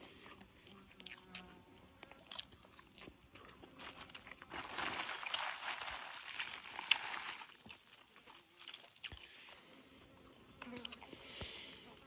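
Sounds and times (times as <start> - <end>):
plastic bag crinkling: 3.8 - 9.2.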